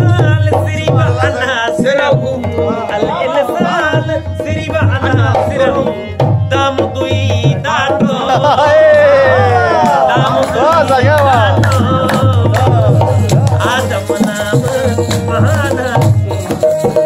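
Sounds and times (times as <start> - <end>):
man singing: 0.0 - 17.0
tabla drumming: 0.0 - 17.0.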